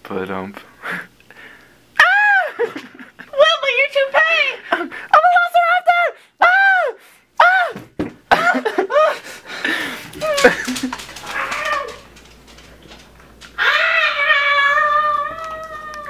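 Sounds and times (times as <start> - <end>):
dog howling: 11.2 - 12.6, 13.6 - 16.0.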